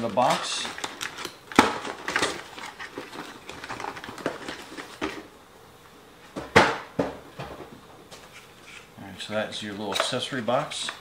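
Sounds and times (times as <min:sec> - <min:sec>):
cardboard packaging rustling: 0:00.0 - 0:05.3.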